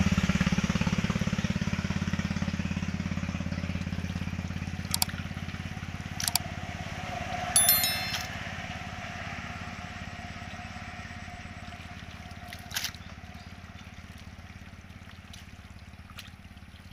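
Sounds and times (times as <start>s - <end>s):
electronic chime: 7.6s - 8.4s.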